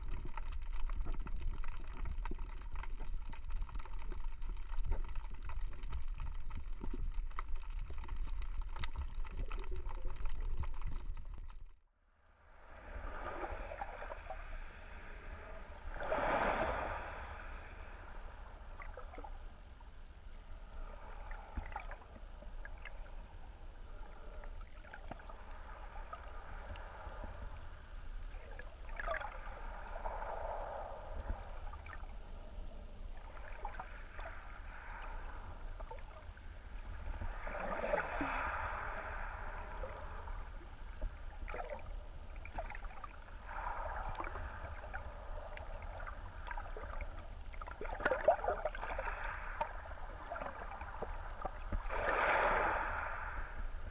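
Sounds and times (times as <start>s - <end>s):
muffled underwater rumble: 0.0s - 11.8s, 12.4s - 53.9s
water surging in shallows: 12.3s - 53.9s.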